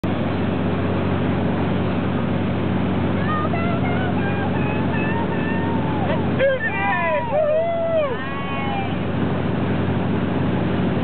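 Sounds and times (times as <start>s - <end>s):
motorboat engine running: 0.0s - 11.0s
rushing boat wake: 0.0s - 11.0s.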